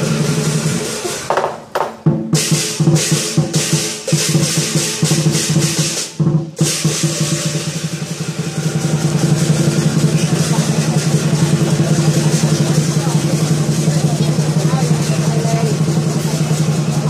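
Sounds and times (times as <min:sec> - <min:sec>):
cymbals clashing: 0:00.0 - 0:17.0
large drum beating: 0:00.0 - 0:17.0
gong ringing: 0:06.8 - 0:17.0.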